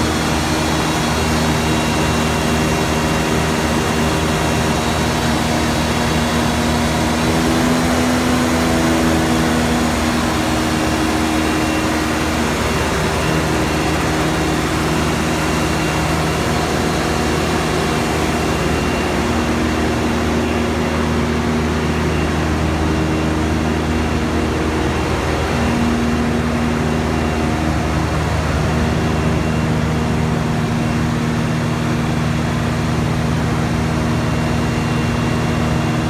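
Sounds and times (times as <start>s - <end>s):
gas engine droning: 0.0s - 36.0s.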